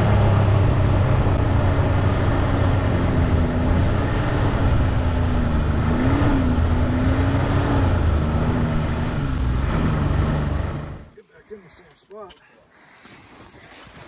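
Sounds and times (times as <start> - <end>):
snowmobile engine running: 0.0 - 11.1
track and wind rush: 0.0 - 11.1.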